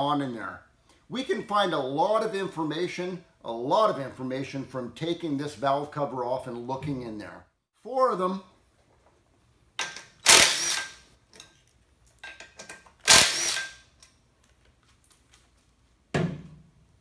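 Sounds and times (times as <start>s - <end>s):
cordless drill bursts: 10.2s - 10.9s, 13.0s - 13.7s.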